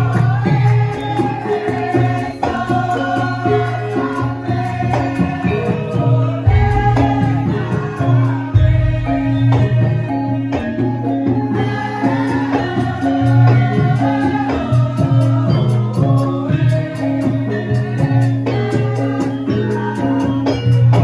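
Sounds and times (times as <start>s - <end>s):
high wavering voice singing: 0.0s - 20.2s
drum strokes: 0.0s - 21.0s
steady low accompaniment: 6.5s - 10.5s.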